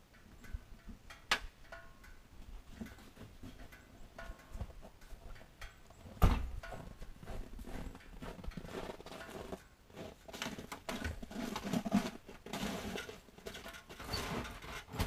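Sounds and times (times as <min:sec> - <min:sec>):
footsteps in snow: 0:06.8 - 0:10.4.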